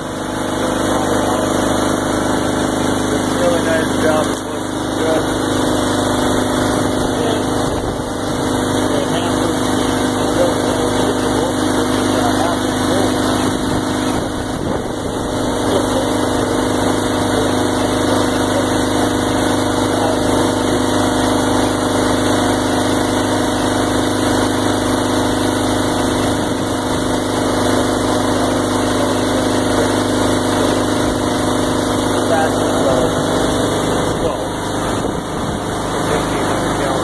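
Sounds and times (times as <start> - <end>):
engine-driven pump running: 0.0 - 37.0.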